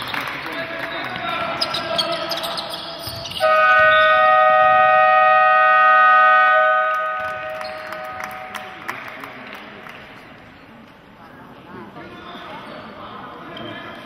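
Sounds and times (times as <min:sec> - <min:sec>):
basketball buzzer blast: 0:03.4 - 0:08.8.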